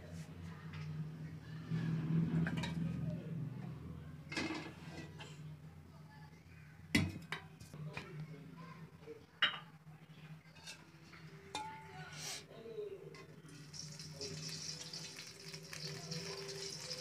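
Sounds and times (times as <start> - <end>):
metal utensils clinking: 13.5 - 17.0.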